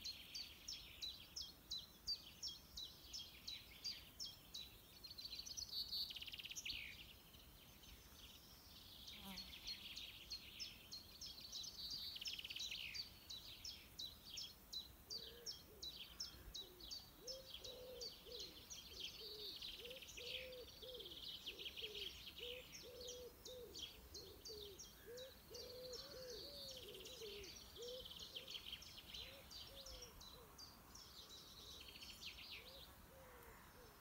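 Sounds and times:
small birds chirping: 0.0s - 34.0s
pigeon cooing: 17.2s - 18.6s, 19.2s - 28.4s.

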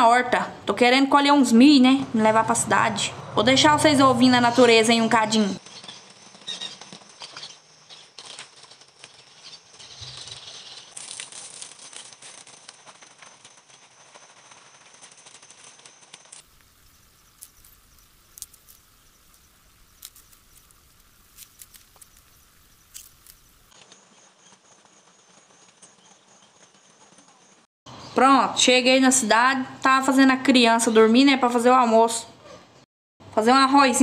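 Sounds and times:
corn plants snapping and rustling: 5.6s - 15.3s, 16.3s - 24.0s
garden hose spraying water: 16.4s - 23.8s.

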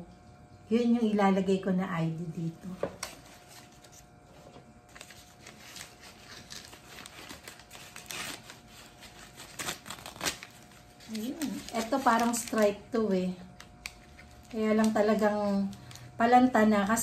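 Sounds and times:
paper crinkling and rustling: 2.7s - 12.9s, 13.5s - 16.1s.

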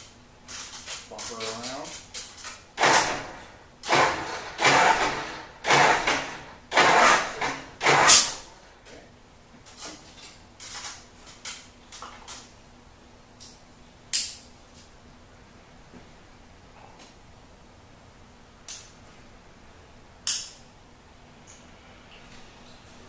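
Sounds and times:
engine starter cranking: 2.8s - 8.4s.

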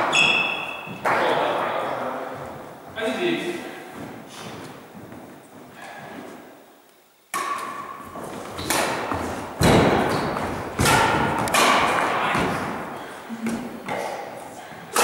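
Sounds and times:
footsteps on wooden gym floor: 2.2s - 6.5s, 8.0s - 14.8s
racket striking shuttlecock: 7.3s - 15.0s.

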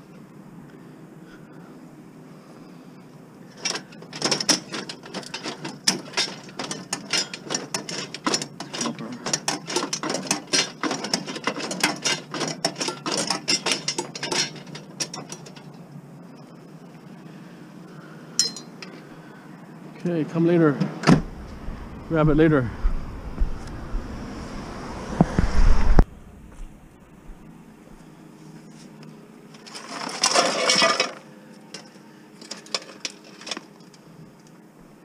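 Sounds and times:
metallic clicking and rattling: 3.6s - 15.8s.

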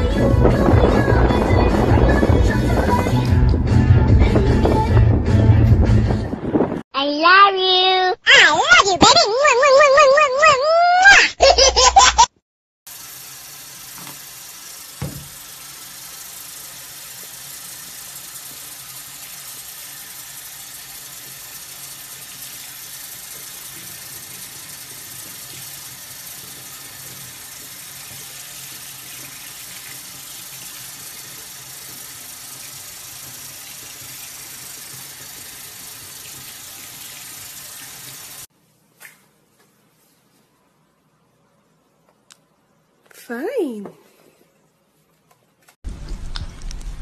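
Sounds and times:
tap water running into sink: 12.9s - 38.5s.

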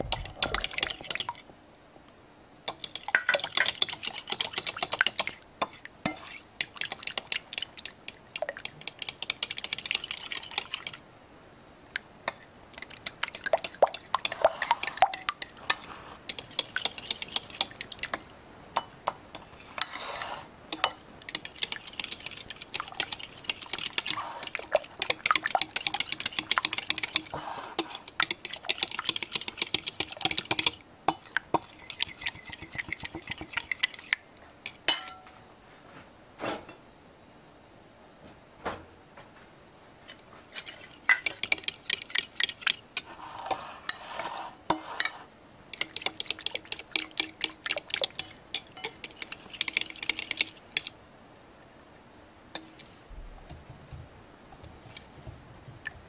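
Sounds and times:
utensil clinking against bowl: 20.7s - 21.5s, 29.6s - 35.3s, 40.8s - 45.2s, 45.8s - 50.9s.

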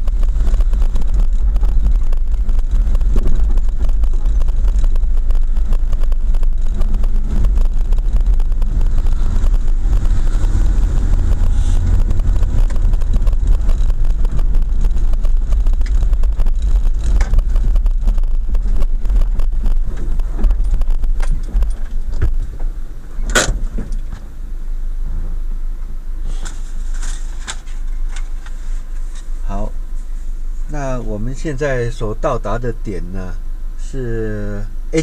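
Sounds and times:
car driving on rough lane: 0.0s - 34.0s, 34.6s - 35.0s.

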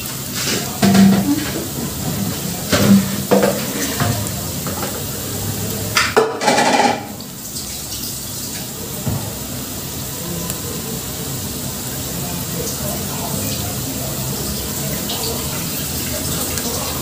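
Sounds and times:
metal kitchenware clattering: 0.4s - 5.1s, 6.0s - 7.2s.

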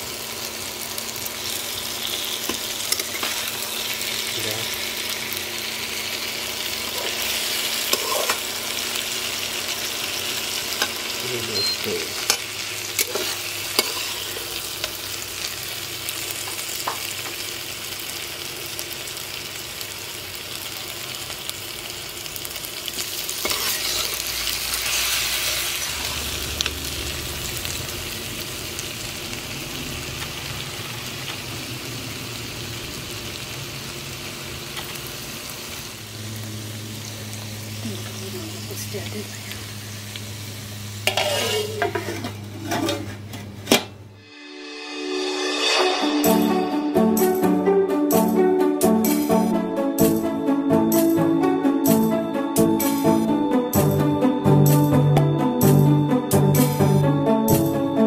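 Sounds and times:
vegetables sizzling in oil: 0.0s - 43.3s
metal spatula scraping pan: 7.0s - 8.5s, 12.2s - 15.0s, 23.4s - 25.9s, 41.0s - 43.6s.

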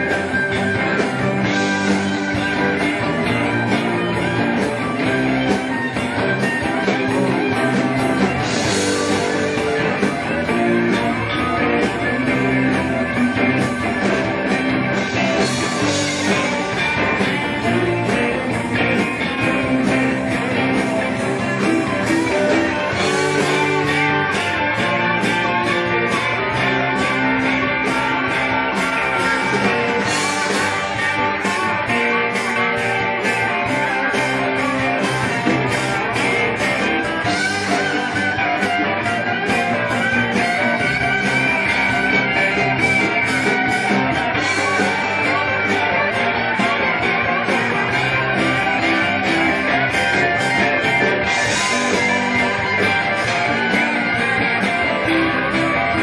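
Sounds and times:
blues-rock band playing: 0.0s - 56.0s.

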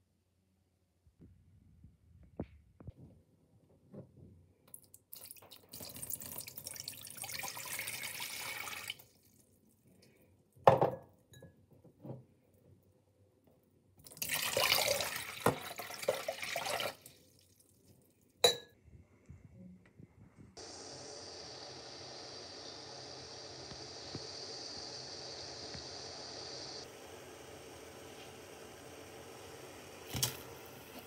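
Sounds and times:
water pouring into metal pot: 4.7s - 9.4s, 14.0s - 17.8s, 26.4s - 31.0s.

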